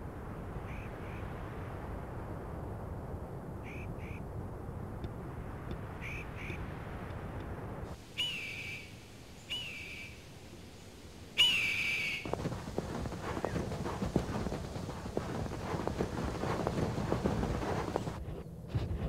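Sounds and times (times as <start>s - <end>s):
bird of prey screaming: 8.2s - 8.9s, 11.4s - 12.2s
hooves clattering over ground: 12.2s - 19.0s.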